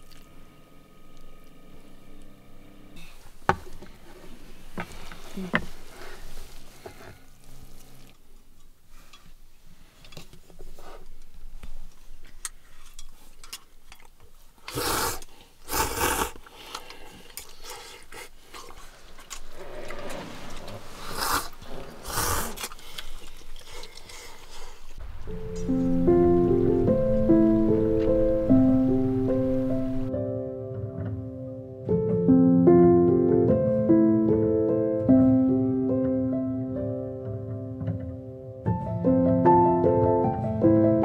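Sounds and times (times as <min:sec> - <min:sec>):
person slurping noodles: 0:14.7 - 0:18.8, 0:19.5 - 0:24.8
music: 0:25.2 - 0:41.0.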